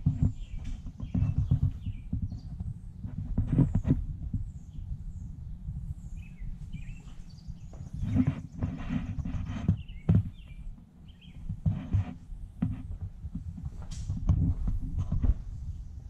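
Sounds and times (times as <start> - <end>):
footsteps: 0.0 - 4.3, 6.6 - 10.4, 11.4 - 15.7
camera handling rumble: 11.2 - 15.7.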